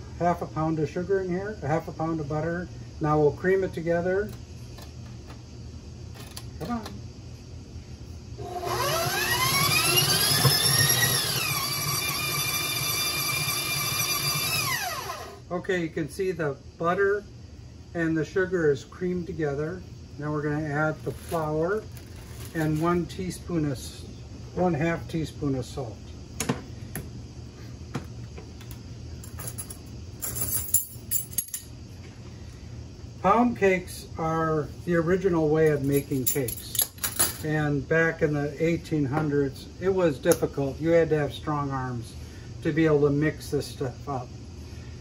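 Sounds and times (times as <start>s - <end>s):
stand mixer motor whine: 8.4s - 15.4s.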